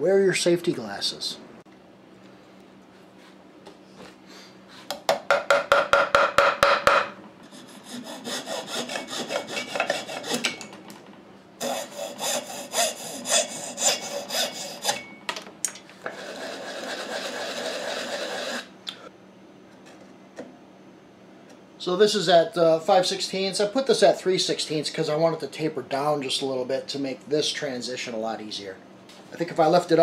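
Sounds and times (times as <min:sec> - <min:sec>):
sanding block rubbing: 0:07.5 - 0:10.4, 0:11.6 - 0:14.9, 0:16.1 - 0:18.7
hacksaw cutting wood: 0:07.5 - 0:10.6, 0:11.6 - 0:15.0, 0:16.1 - 0:18.7.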